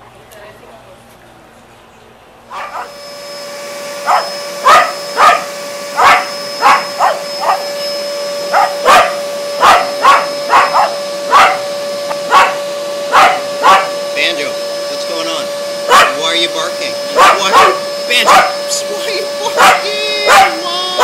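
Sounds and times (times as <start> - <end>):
vacuum cleaner whining: 2.4 - 21.0
dog barking: 2.5 - 2.9, 4.0 - 7.6, 8.5 - 11.7, 12.3 - 14.0, 15.9 - 16.3, 17.1 - 18.6, 19.5 - 21.0.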